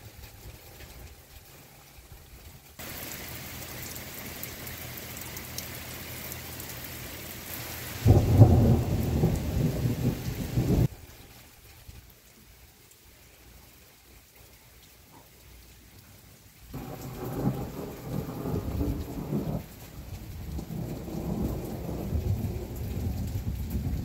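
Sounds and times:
heavy rain hissing: 0.0 - 14.1, 16.2 - 24.0
low rumble of thunder: 8.0 - 10.9, 16.8 - 24.0.

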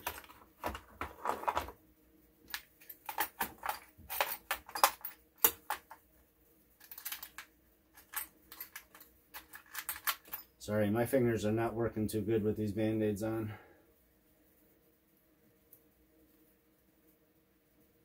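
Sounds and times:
metal tools clattering in tray: 2.8 - 5.9, 6.8 - 7.4, 8.0 - 10.5.

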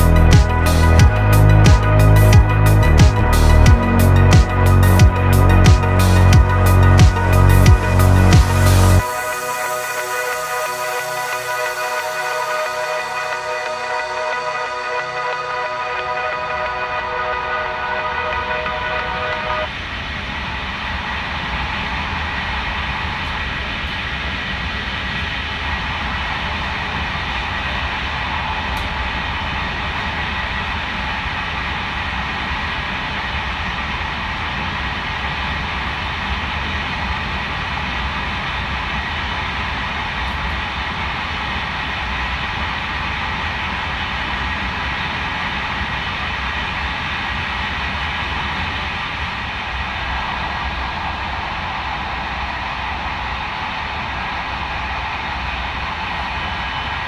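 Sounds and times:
train rumble and rushing hiss: 8.4 - 57.0.

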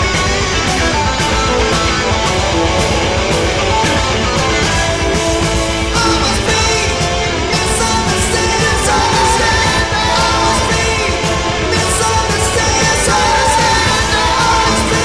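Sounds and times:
rock band playing: 0.0 - 15.0
person singing: 5.8 - 15.0.

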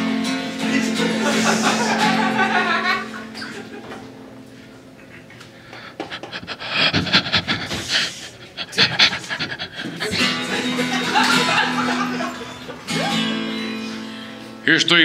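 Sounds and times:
acoustic guitar chord strummed: 0.0 - 4.4, 9.9 - 14.9
man panting into microphone: 5.5 - 12.4.

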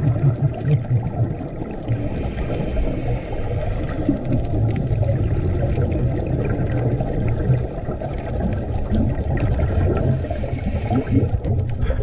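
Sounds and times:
low underwater rumble: 0.0 - 12.0
regulator bubbling: 0.0 - 12.0
underwater breathing: 1.8 - 5.6, 9.3 - 12.0.

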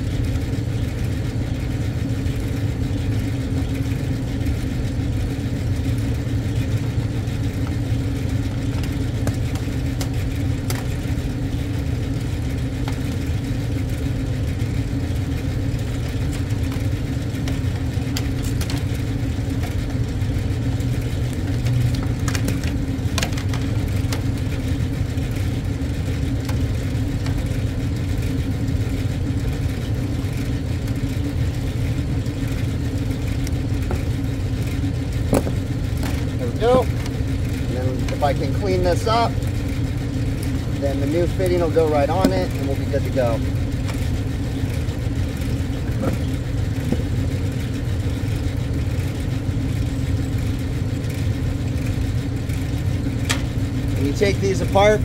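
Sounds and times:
machinery hum: 0.0 - 55.0
wire cutters clicking on metal: 16.0 - 19.0.

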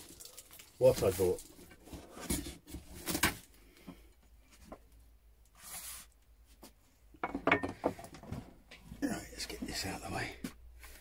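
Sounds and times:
tools knocking on wooden workbench: 7.2 - 8.0.

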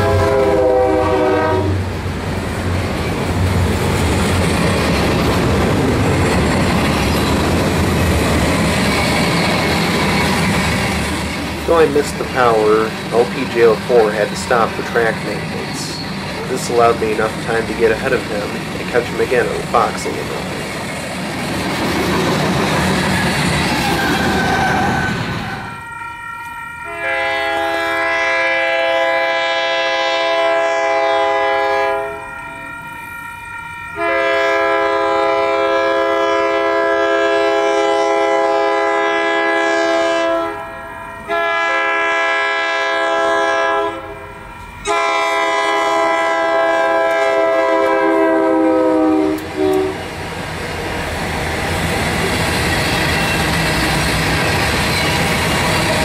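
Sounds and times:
diesel locomotive horn chord: 0.0 - 2.0, 24.4 - 50.1.

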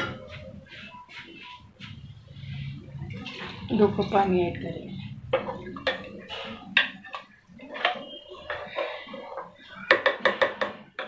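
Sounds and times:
spoon knocking against pot: 9.8 - 11.0.

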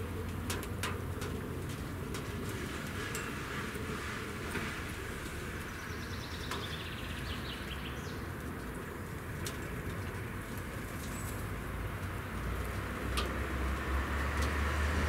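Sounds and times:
small bird singing: 5.7 - 8.3.

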